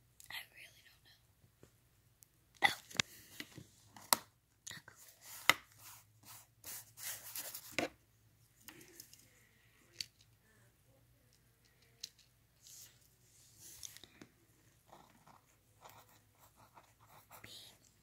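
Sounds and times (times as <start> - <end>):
pen scratching on paper: 14.8 - 17.8.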